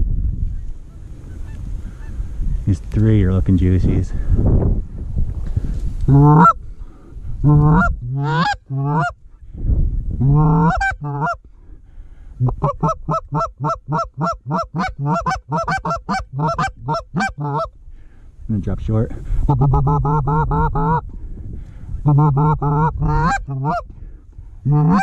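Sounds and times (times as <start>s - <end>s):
low wind rumble: 0.0s - 25.0s
goose honking: 6.1s - 6.6s, 7.5s - 9.2s, 10.3s - 11.4s, 12.4s - 17.7s, 22.1s - 23.9s, 24.7s - 25.0s.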